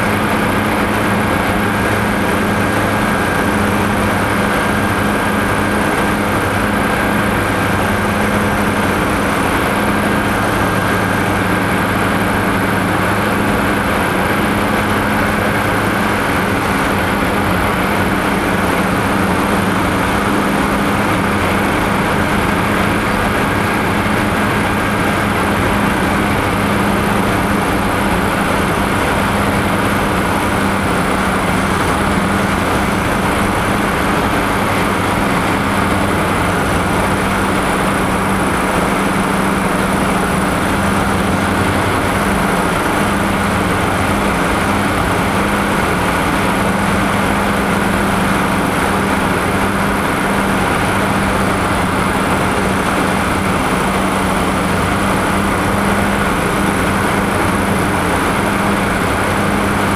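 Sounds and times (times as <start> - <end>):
aircraft engines droning in cabin: 0.0 - 59.9
constant rushing noise: 0.0 - 59.9.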